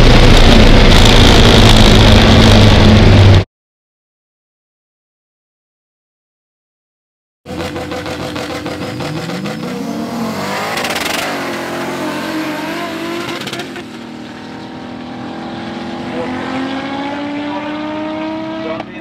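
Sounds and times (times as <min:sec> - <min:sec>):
race car engine accelerating: 0:00.0 - 0:03.4, 0:07.5 - 0:19.0.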